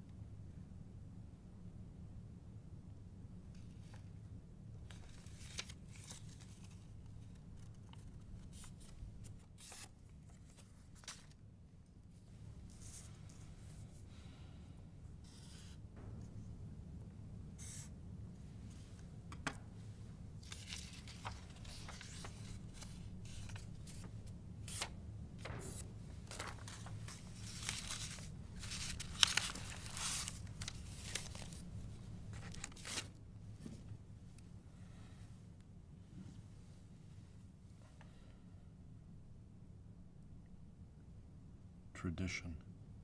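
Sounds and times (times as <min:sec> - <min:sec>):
faint low hum: 0:00.0 - 0:43.0
paper rustling and tearing: 0:04.9 - 0:11.4, 0:20.4 - 0:31.7, 0:32.3 - 0:33.2.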